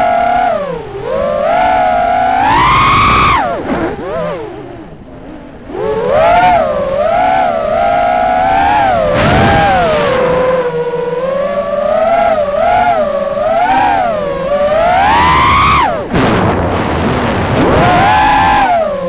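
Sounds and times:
drone motors whining: 0.0s - 19.0s.

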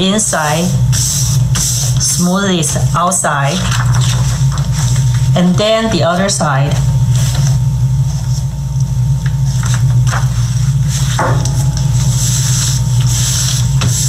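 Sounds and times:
steady low hum: 0.0s - 14.0s
paper rustling and rubbing: 0.9s - 5.4s, 7.1s - 8.5s, 9.4s - 14.0s.

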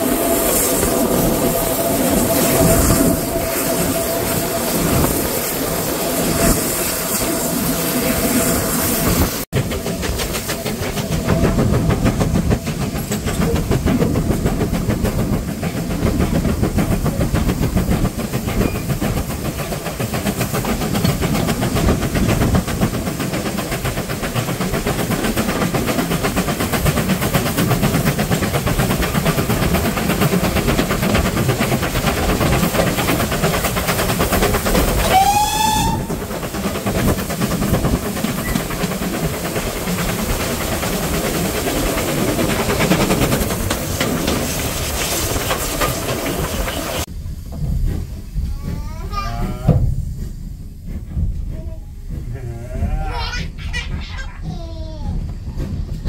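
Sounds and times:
train wheels rumbling on track: 0.0s - 56.0s
steam whistle blast: 35.0s - 36.2s.

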